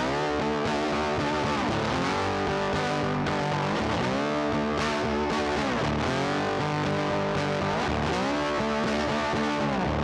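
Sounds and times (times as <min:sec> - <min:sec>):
distorted electric guitar: 0:00.0 - 0:10.0.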